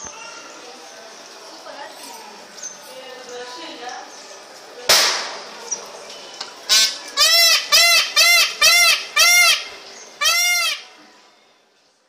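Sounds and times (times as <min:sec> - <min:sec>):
peafowl calling: 0:06.7 - 0:10.9.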